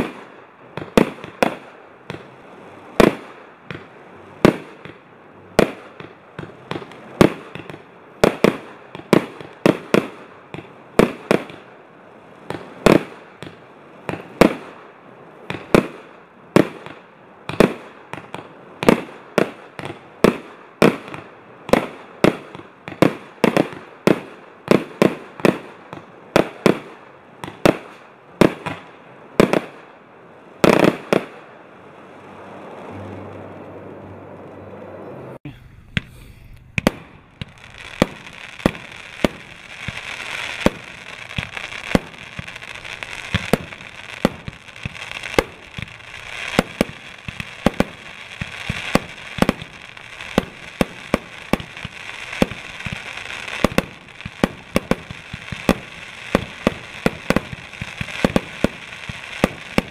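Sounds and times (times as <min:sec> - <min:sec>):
firework hiss: 0:35.9 - 0:59.9
firework shells bursting: 0:35.9 - 0:59.9.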